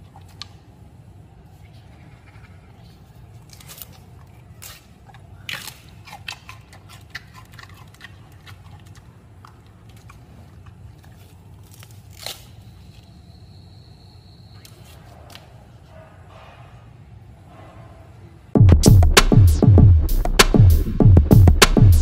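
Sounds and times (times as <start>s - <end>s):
panda chewing bamboo crunches: 2.8s - 13.2s
low steady hum: 15.6s - 22.0s.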